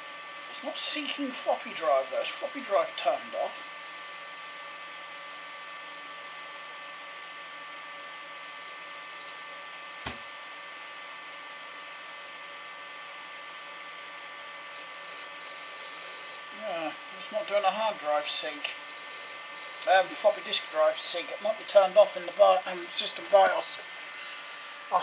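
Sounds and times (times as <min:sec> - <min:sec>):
computer fans whirring: 0:00.0 - 0:25.0
faint steady whines: 0:00.0 - 0:25.0
sharp click: 0:10.0 - 0:10.3.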